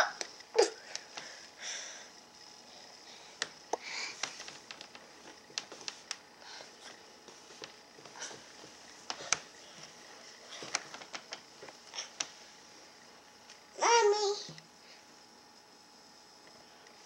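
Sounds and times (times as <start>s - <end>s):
toddler sniffing and breathing: 2.8s - 4.3s
faint clicks and taps: 3.4s - 6.2s, 6.8s - 10.0s, 10.6s - 12.4s.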